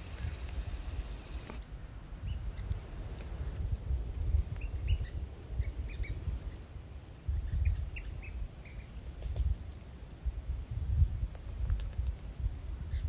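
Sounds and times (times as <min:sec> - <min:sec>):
woodpecker call notes: 0:00.0 - 0:01.6
steady high hiss: 0:00.0 - 0:11.5.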